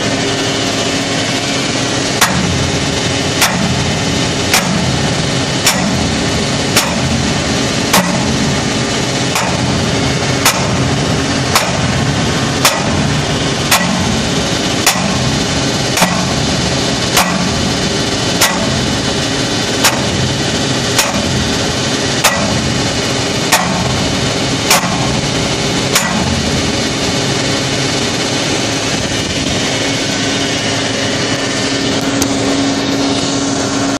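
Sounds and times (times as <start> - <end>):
machinery drone: 0.0 - 33.9
sledgehammer striking steel pipe: 2.2 - 19.2, 19.8 - 26.7.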